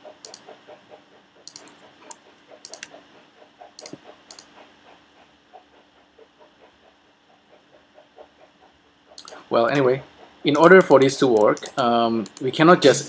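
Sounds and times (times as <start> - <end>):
computer mouse clicks: 0.2 - 0.5, 1.4 - 3.0, 3.8 - 4.5, 9.2 - 9.4, 10.6 - 12.5.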